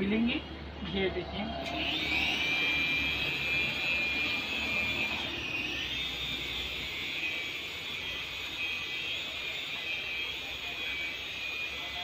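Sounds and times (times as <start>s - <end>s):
toy helicopter rotors whining: 1.6s - 12.0s.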